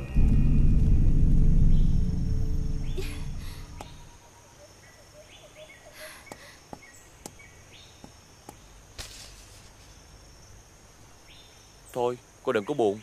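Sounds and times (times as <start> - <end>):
music: 0.0 - 3.7
birds chirping: 0.0 - 8.9
faint insect hiss: 0.0 - 13.0.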